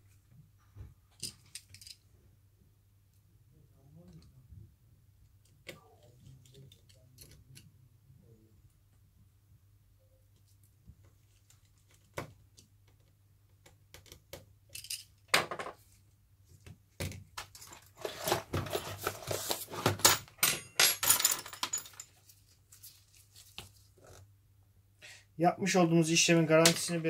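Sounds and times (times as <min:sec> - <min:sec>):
paper crinkling: 0:22.2 - 0:24.2.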